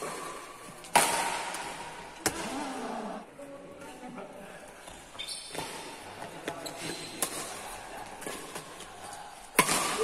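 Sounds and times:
rackets striking shuttlecock: 0:00.0 - 0:02.5, 0:09.5 - 0:10.0.

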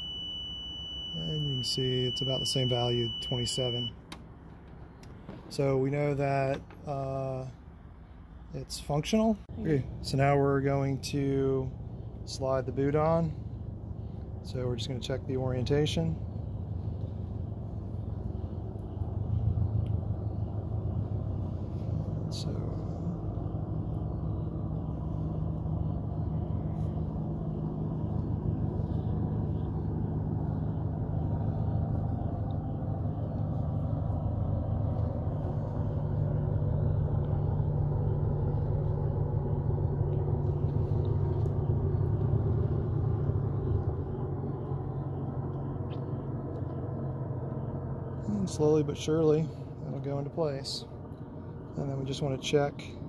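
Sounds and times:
low mechanical hum: 0:00.0 - 0:53.0.

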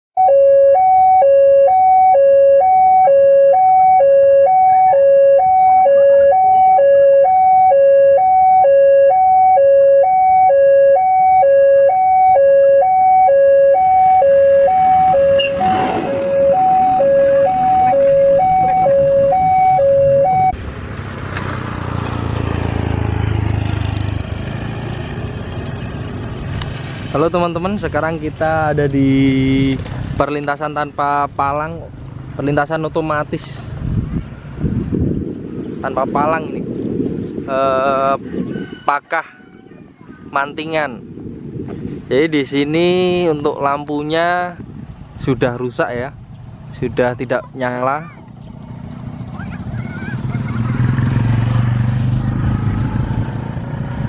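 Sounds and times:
level crossing two-tone alarm: 0:00.2 - 0:20.6.

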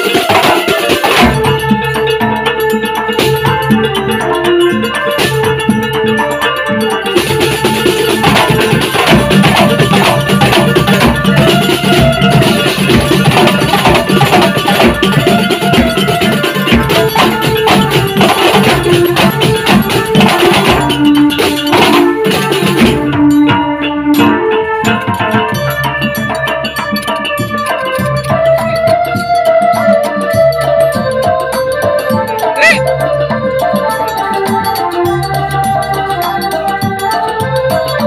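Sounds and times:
frame drums playing fast rhythm: 0:00.0 - 0:38.0
melody over drumming: 0:00.0 - 0:38.0.

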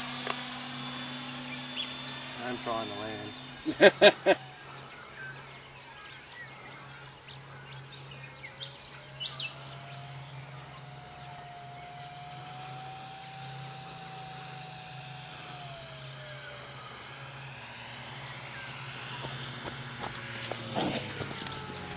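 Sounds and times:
model plane motor passing overhead: 0:00.0 - 0:21.9
steady low hum: 0:00.0 - 0:21.9
bird chirps: 0:01.1 - 0:14.6.

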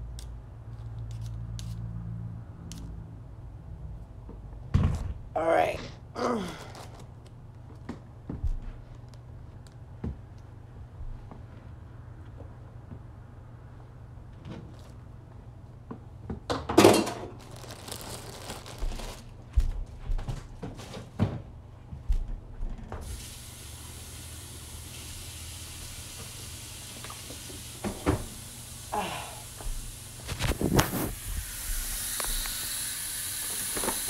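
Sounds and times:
steady hiss: 0:23.0 - 0:34.0.

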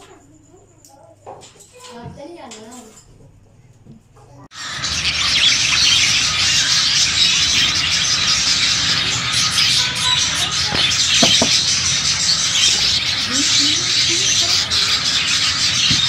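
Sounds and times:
budgerigars chattering: 0:04.6 - 0:16.0.

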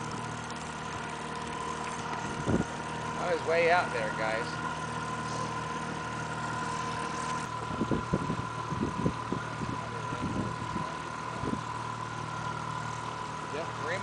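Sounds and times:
boat motor running: 0:00.0 - 0:14.0
low thumps and buffeting: 0:01.8 - 0:02.8, 0:06.7 - 0:11.7.

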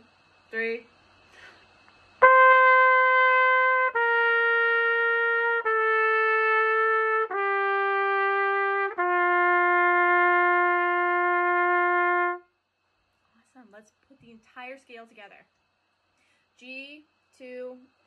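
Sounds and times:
solo trumpet playing scale: 0:02.2 - 0:12.5.

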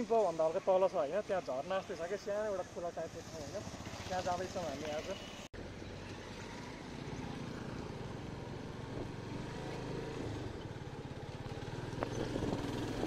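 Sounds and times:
motorcycle engine rumble: 0:02.2 - 0:13.0.

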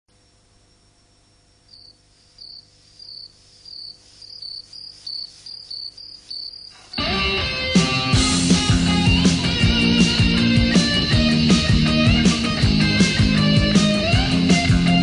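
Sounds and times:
faint steady hum: 0:00.1 - 0:07.0
cricket chirping: 0:00.1 - 0:07.1.

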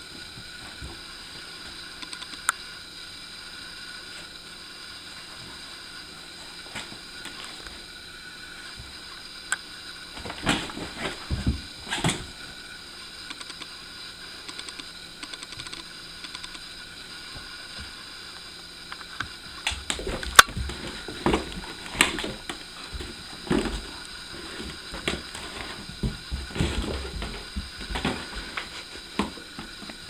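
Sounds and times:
plastic cone bumping floor: 0:19.7 - 0:29.9.

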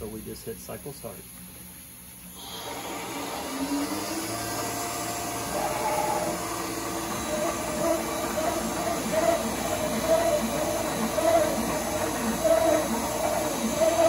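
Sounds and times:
machine whining tones: 0:02.3 - 0:14.0
mill motor hum: 0:02.3 - 0:14.0.

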